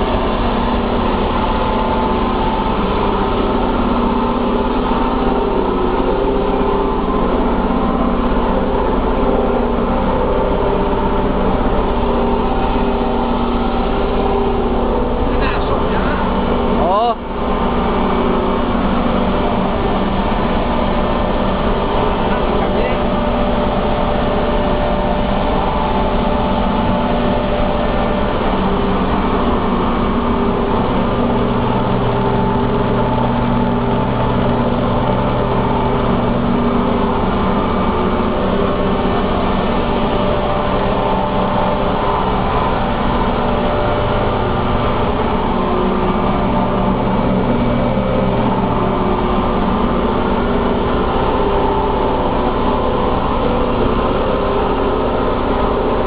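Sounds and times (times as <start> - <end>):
deep hum: 0.0 - 56.0
industrial machinery drone: 0.0 - 56.0.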